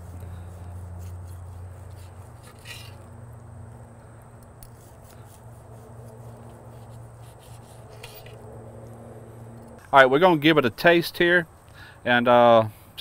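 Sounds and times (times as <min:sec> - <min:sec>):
low steady hum: 0:00.0 - 0:13.0
knife blade scraping: 0:01.0 - 0:03.1, 0:04.6 - 0:08.5
knife slicing meat: 0:04.7 - 0:08.4.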